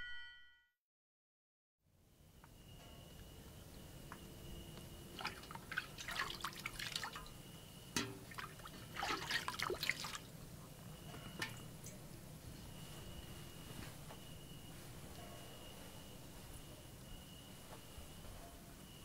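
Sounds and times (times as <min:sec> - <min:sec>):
water splashing in a bucket: 0:05.1 - 0:07.4, 0:08.0 - 0:10.3.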